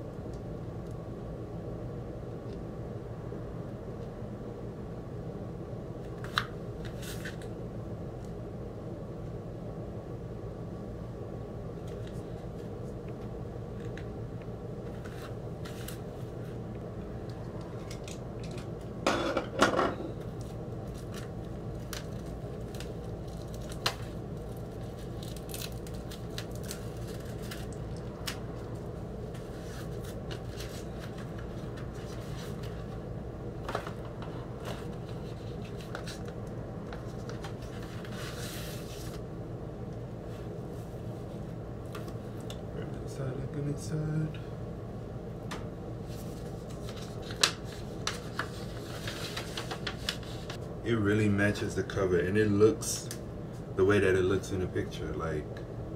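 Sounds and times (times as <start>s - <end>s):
steady low hum: 0.0s - 55.9s
record sleeves clicking and rustling: 6.0s - 7.6s, 14.8s - 16.6s, 20.2s - 39.2s, 45.5s - 50.6s
plastic shrink wrap crinkling: 20.4s - 32.9s, 46.3s - 50.6s.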